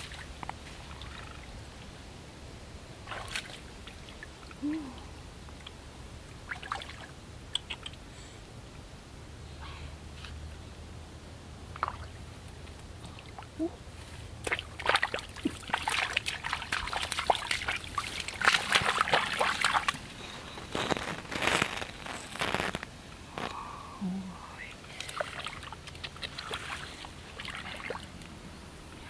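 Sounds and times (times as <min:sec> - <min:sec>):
shallow water splashing: 0:03.0 - 0:04.4, 0:14.4 - 0:20.2, 0:25.0 - 0:28.1.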